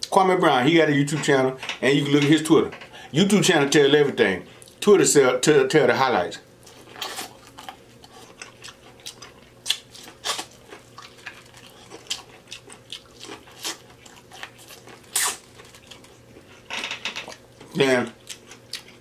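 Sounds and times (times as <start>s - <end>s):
wet smacking and chewing: 6.6s - 16.6s, 17.3s - 19.0s.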